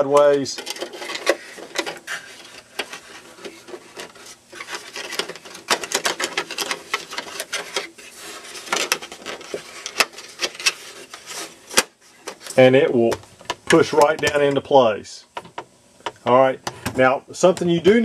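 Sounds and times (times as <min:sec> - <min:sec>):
wood piece scraping and clicking: 0:00.2 - 0:12.6.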